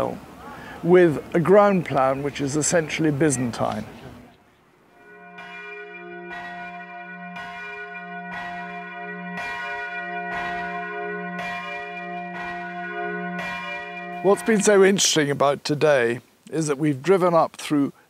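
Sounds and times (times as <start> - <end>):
church bell ringing: 5.0 - 15.2.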